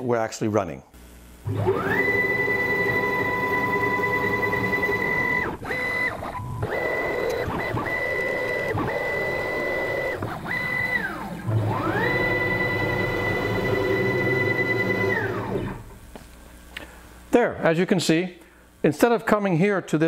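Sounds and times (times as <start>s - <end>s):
stepper motors whining: 1.5s - 16.0s.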